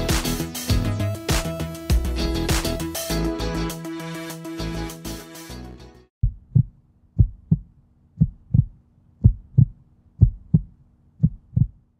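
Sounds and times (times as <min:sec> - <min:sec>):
music track: 0:00.0 - 0:06.1
heartbeat thumps: 0:06.2 - 0:11.9.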